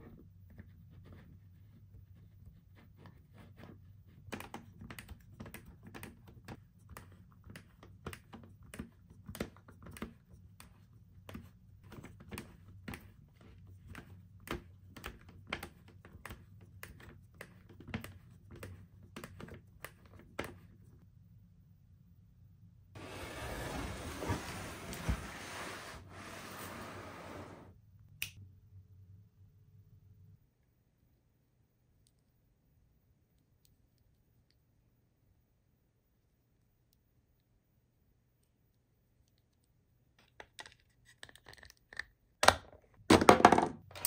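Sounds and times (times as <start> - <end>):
low steady hum: 8.5 - 40.2.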